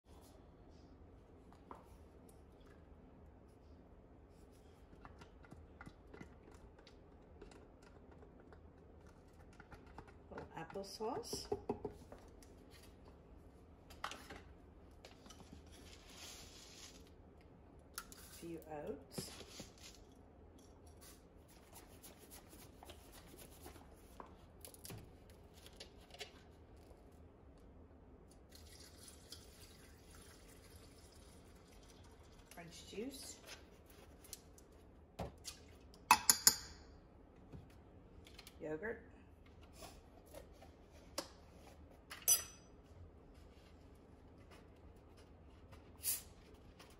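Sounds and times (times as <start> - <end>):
juice pouring trickle: 28.3 - 32.6.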